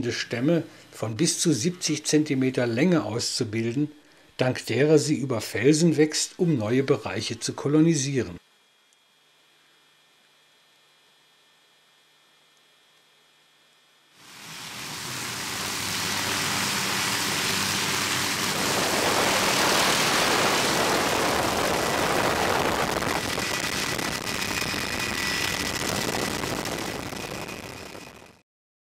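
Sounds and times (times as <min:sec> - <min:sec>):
faint high whine: 0:00.0 - 0:28.4
helicopter rotor and engine: 0:14.2 - 0:28.4
low hum: 0:14.2 - 0:28.4.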